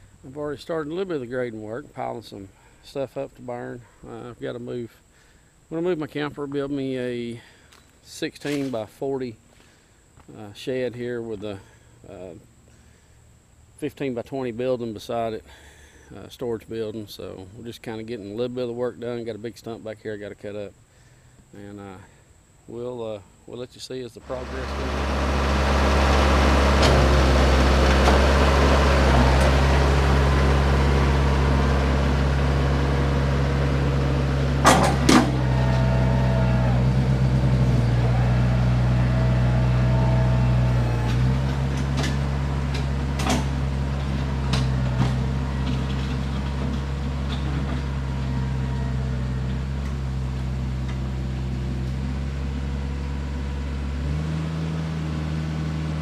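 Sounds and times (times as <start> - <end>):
tractor diesel engine running: 24.2 - 56.0.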